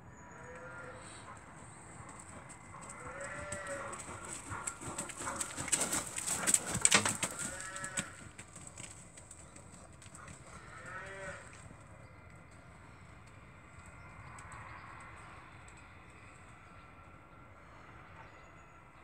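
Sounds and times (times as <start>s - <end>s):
horse hooves thudding: 1.3s - 15.2s
cattle mooing: 2.9s - 4.7s, 6.9s - 8.2s.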